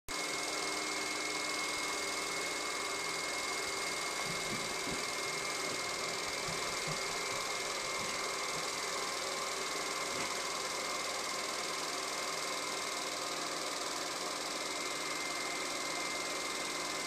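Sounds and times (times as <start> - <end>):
projector fan whirring: 0.1 - 17.0.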